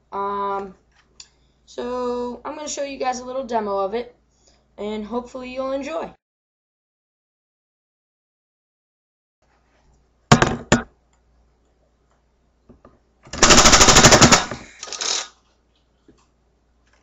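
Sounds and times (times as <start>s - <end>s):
rapid dart blaster shots: 13.3s - 14.7s.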